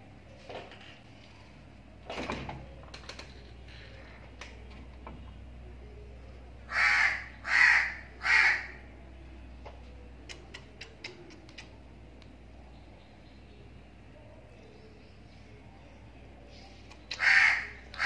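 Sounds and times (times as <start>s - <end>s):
crow cawing: 6.7s - 8.8s, 17.2s - 18.0s.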